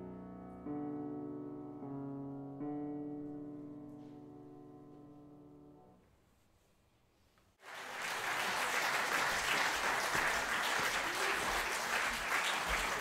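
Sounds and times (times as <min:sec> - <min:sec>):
audience applause: 0:07.6 - 0:13.0.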